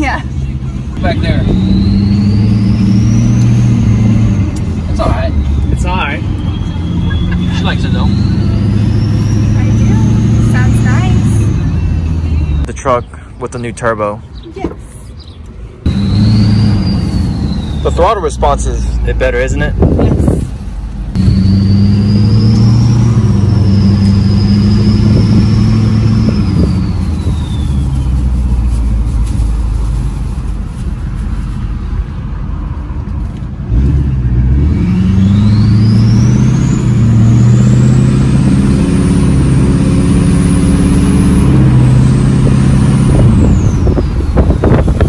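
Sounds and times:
diesel truck engine accelerating: 0.0 - 45.0
turbo whistle: 1.3 - 4.5, 5.3 - 12.4, 15.9 - 18.3, 21.2 - 28.2.

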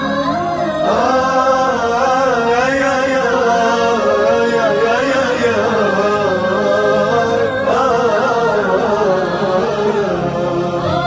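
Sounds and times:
person singing a devotional song: 0.0 - 11.0.

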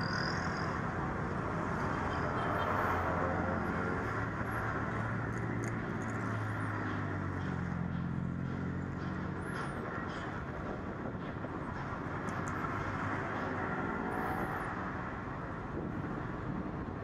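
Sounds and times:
city noise: 0.0 - 17.0
diesel locomotive engine humming: 3.1 - 17.0.

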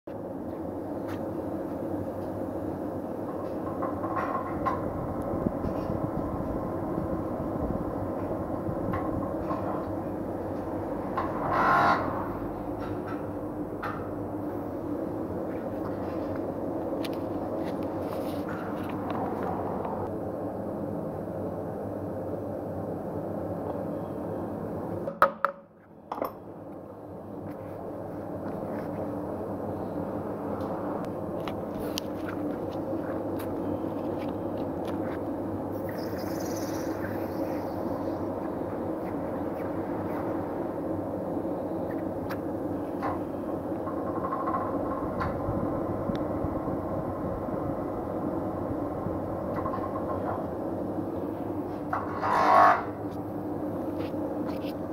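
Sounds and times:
thin whine: 27.8 - 54.9.

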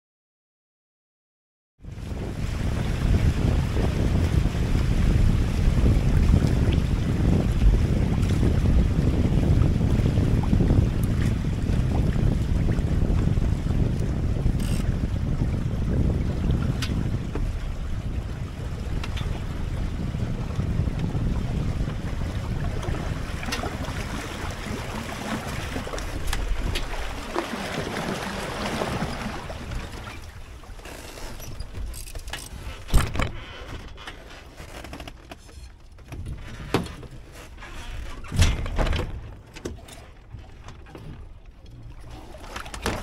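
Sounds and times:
wind on microphone: 1.8 - 34.1, 36.0 - 43.0
water rushing along boat hulls: 1.8 - 43.0
sharp knocks from boat: 16.0 - 17.9, 18.8 - 19.6, 22.7 - 28.2, 28.8 - 43.0.

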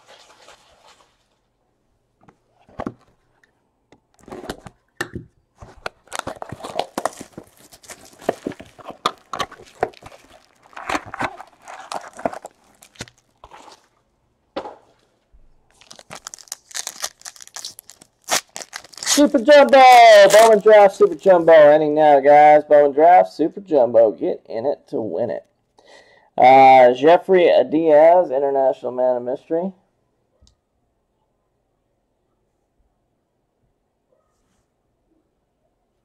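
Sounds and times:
plastic wrap crinkling: 5.6 - 14.1, 15.7 - 21.3.

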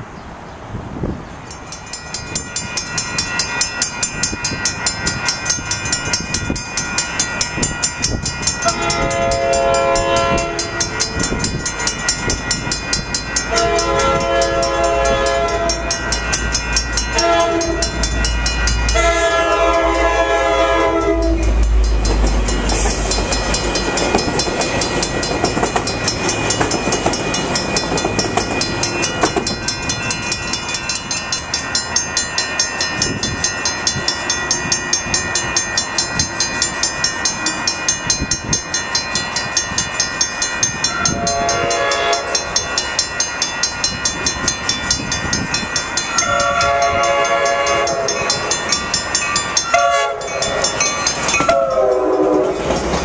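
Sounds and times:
train rushing past: 0.0 - 53.0
crossing bell ringing: 1.3 - 53.0
train air horn blasts: 8.6 - 11.0, 13.5 - 15.9, 17.1 - 18.0, 18.9 - 21.6, 40.9 - 42.5, 46.2 - 48.3, 49.7 - 50.4, 51.4 - 52.6.

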